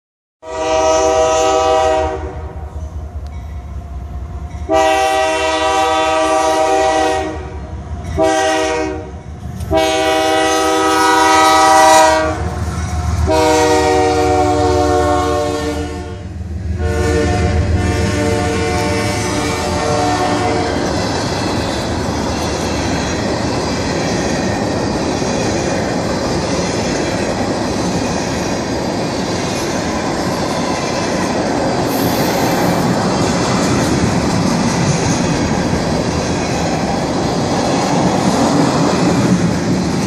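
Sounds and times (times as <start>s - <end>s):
locomotive air horn blasts: 0.4s - 2.7s, 4.7s - 7.6s, 8.2s - 9.1s, 9.7s - 12.5s, 13.2s - 16.2s, 16.8s - 20.8s
locomotive and train rumble: 0.4s - 40.0s.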